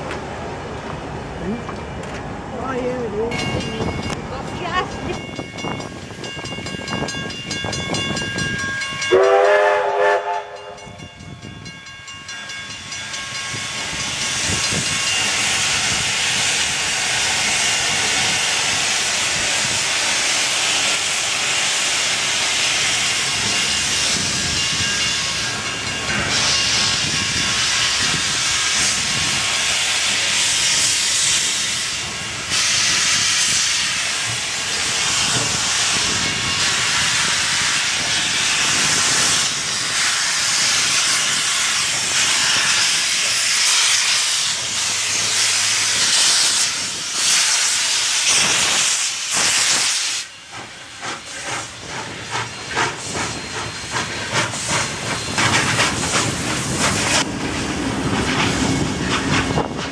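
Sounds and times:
steam locomotive whistle blast: 9.1s - 10.8s
steam hiss: 13.2s - 59.9s.

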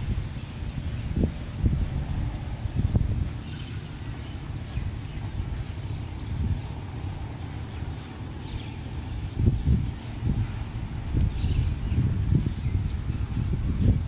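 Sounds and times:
steady low rumble: 0.0s - 14.0s
bird chirping: 2.7s - 13.5s.

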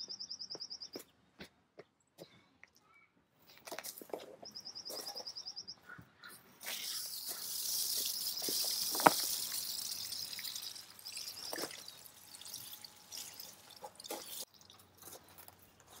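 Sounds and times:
hose spray wand hissing: 6.6s - 14.5s.

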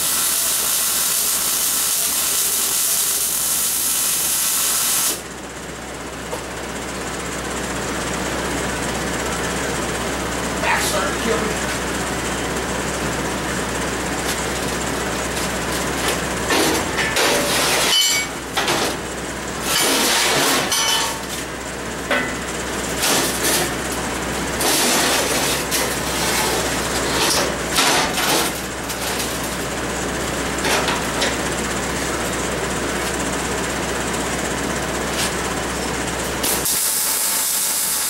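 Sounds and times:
metal clanking on metal: 19.7s - 21.3s.

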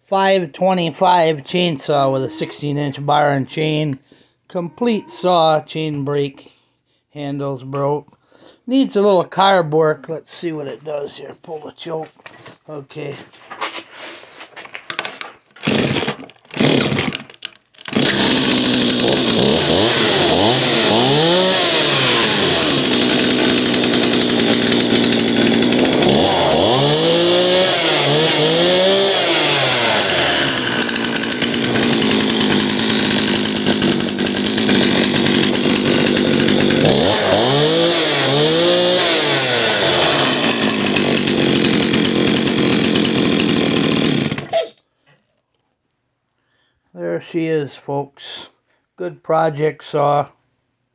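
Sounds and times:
chainsaw engine running and revving: 15.6s - 44.5s
chainsaw pull-start bursts: 15.6s - 44.6s.

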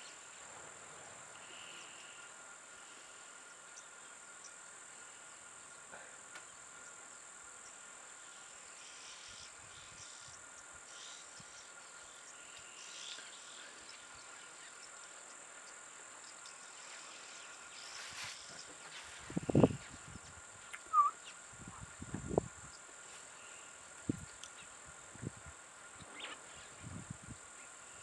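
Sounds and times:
high-pitched insect drone: 7.7s - 22.8s.

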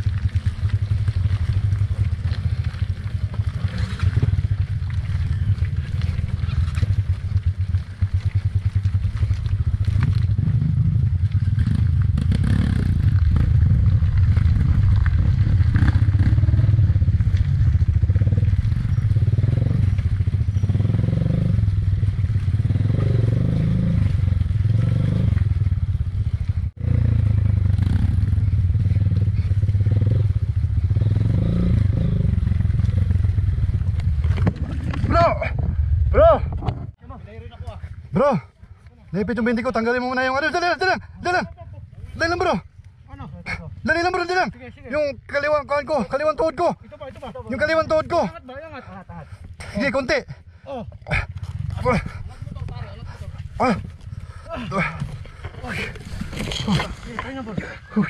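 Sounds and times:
bike knocking and rattling: 0.0s - 38.1s, 50.9s - 58.0s
dirt bike engine running: 0.0s - 58.0s.

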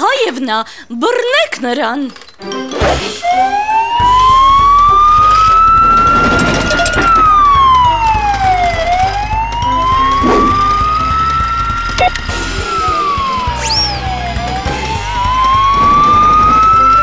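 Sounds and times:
wailing siren: 3.2s - 17.0s
background music with bass line: 4.0s - 17.0s.

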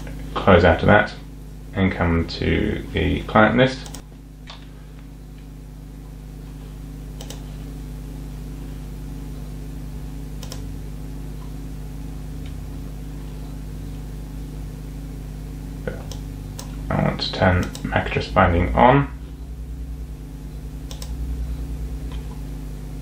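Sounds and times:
steady low hum: 0.0s - 23.0s
computer mouse clicks: 7.2s - 7.4s, 10.4s - 10.7s, 17.6s - 17.9s, 20.8s - 21.2s.

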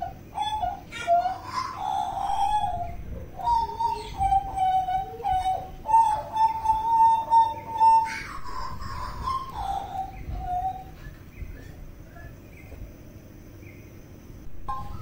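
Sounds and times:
bird singing fluting whistles: 0.0s - 11.5s, 14.6s - 15.0s.

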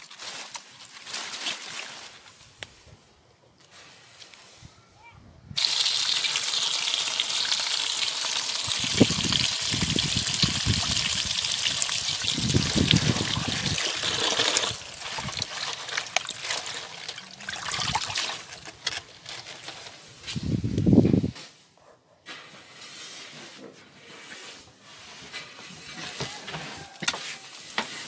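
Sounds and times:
water pouring into basin: 5.6s - 18.6s
water sloshing and splashing: 9.7s - 19.7s.

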